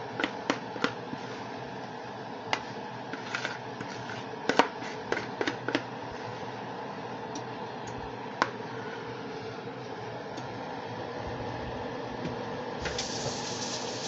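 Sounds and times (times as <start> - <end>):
spoon scraping mixing bowl: 2.6 - 5.5.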